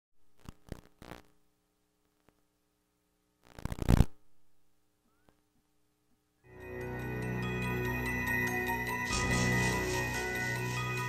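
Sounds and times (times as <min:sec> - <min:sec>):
music: 0:06.5 - 0:11.0.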